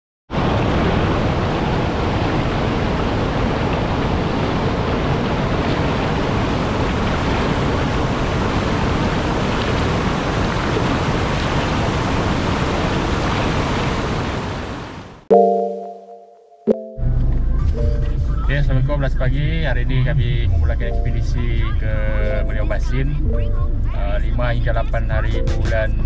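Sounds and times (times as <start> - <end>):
river rapids and waterfall rushing: 0.4 - 15.0.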